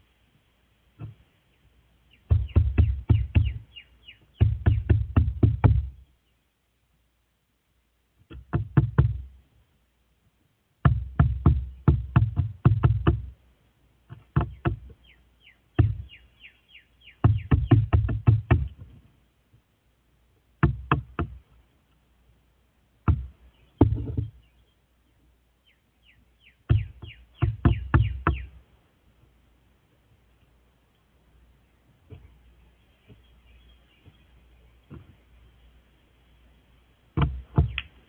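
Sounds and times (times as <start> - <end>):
small birds chirping: 0.0 - 38.0
crow pecking wooden railing: 2.2 - 6.0, 8.2 - 9.4, 14.0 - 15.1, 17.1 - 19.0, 20.6 - 21.6, 26.6 - 28.6.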